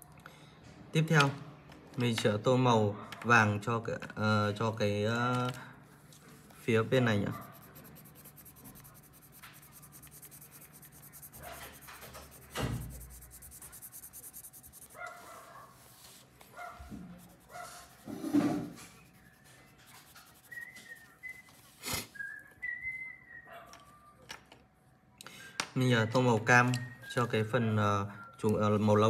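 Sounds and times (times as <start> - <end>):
pencil scratching on paper: 7.0 - 20.7.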